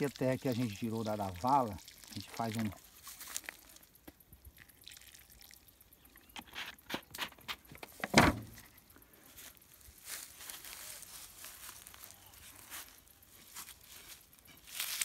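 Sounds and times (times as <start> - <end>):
water dripping: 0.0 - 6.3
water pouring onto soil: 0.0 - 6.9.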